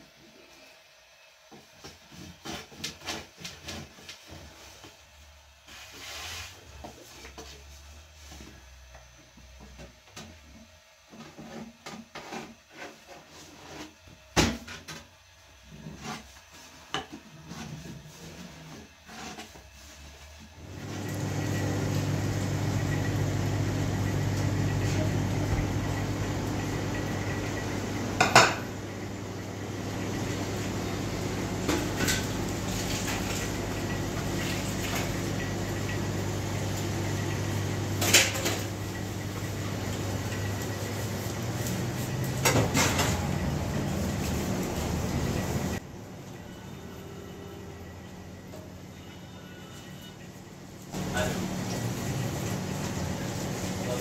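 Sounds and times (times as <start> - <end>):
restaurant kitchen hum: 0.0 - 54.0
pots and dishes clinking: 28.2 - 28.7, 31.6 - 33.4, 38.0 - 38.7, 42.4 - 43.3.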